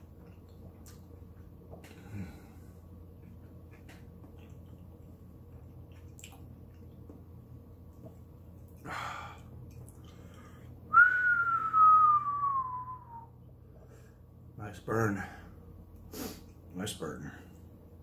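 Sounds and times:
man whistling descending note: 10.9s - 13.3s.

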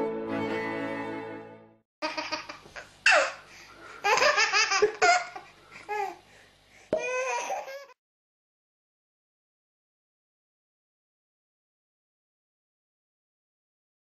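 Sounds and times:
young children laughing: 2.0s - 5.5s.

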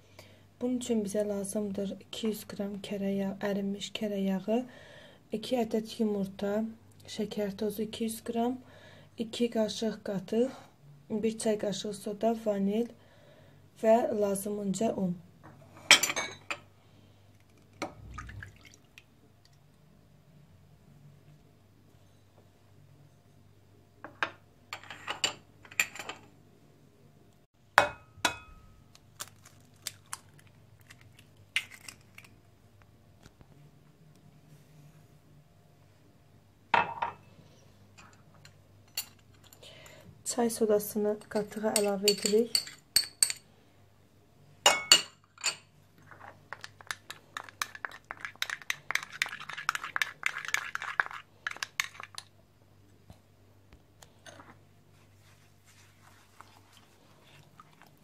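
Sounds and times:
eggshells cracking: 28.9s - 32.4s
metal spoon clinking on glass bowl: 41.2s - 43.4s, 44.7s - 45.6s.

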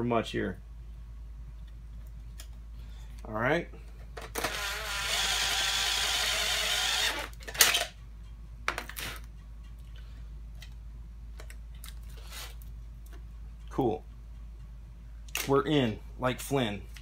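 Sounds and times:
drill cutting sheet metal: 4.4s - 7.8s.

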